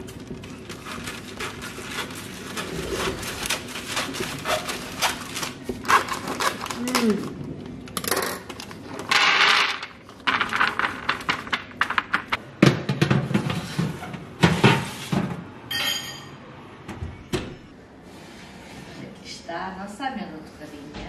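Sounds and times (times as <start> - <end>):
paper bag rustling: 0.0 - 7.3.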